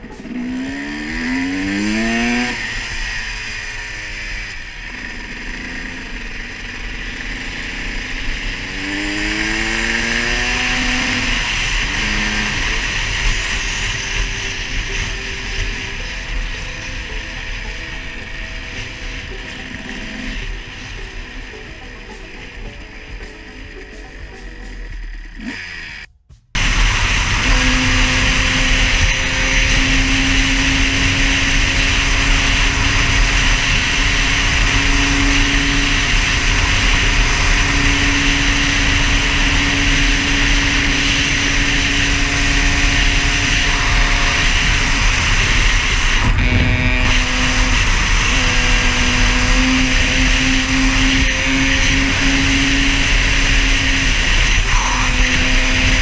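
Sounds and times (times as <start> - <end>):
dirt bike engine running: 0.0 - 56.0
music: 14.2 - 26.6
wind rush on microphone: 26.6 - 56.0.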